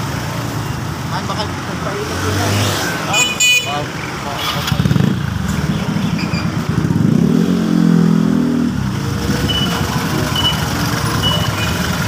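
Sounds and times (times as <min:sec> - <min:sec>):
vehicle engines running: 0:00.0 - 0:12.0
short high beeps: 0:09.4 - 0:11.8.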